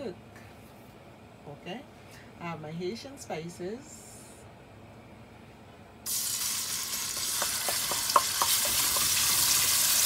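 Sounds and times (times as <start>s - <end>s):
seasoning sizzling in hot oil: 6.1s - 10.0s.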